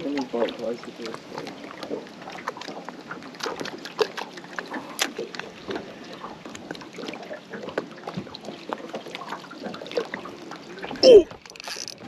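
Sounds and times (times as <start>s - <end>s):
water slapping hull: 0.0s - 12.0s
taps and clicks on boat hull: 7.7s - 9.0s.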